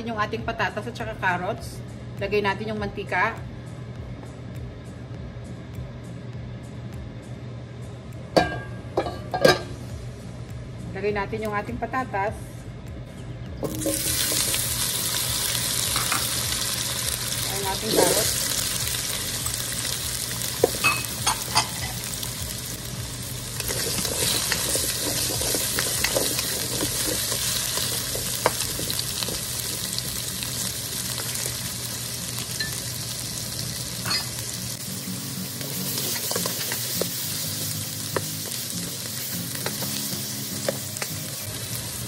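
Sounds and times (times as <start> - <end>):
vegetables sizzling in hot oil: 13.6 - 42.0.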